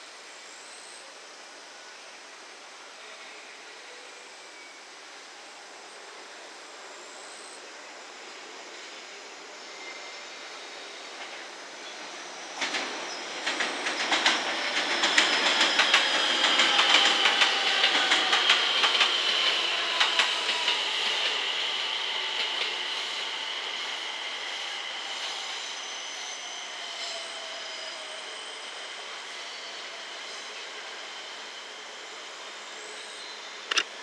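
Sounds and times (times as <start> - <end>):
wheel flange squeal: 11.2 - 33.8
train wheels clacking: 12.6 - 23.4.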